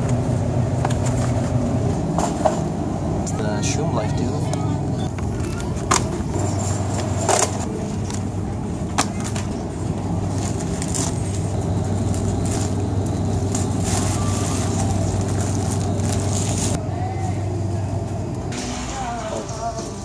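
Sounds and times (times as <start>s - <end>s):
shopping cart rolling: 5.1s - 16.8s.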